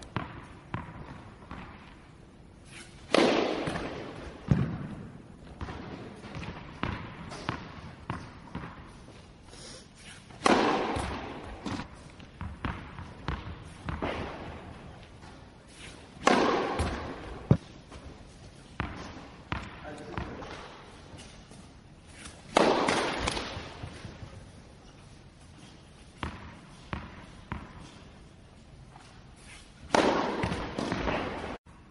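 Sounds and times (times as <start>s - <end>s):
tennis ball bouncing on court: 0.0s - 2.0s, 3.1s - 9.2s, 10.3s - 15.5s, 16.1s - 21.7s, 22.3s - 24.4s, 26.0s - 28.2s, 29.8s - 31.6s
racket hitting tennis ball: 0.0s - 31.6s.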